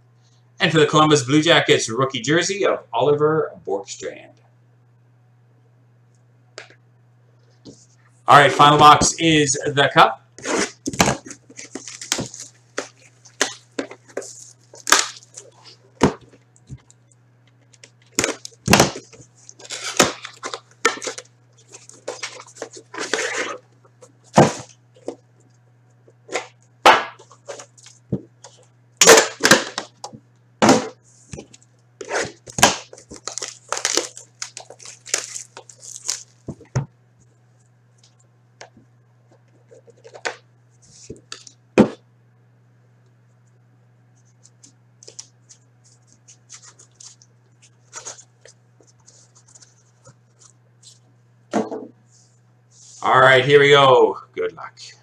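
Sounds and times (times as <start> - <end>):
faint steady hum: 0.0 - 55.0
cardboard and wrapper ripping: 10.4 - 16.2, 18.1 - 23.6, 31.4 - 36.4, 46.2 - 49.7.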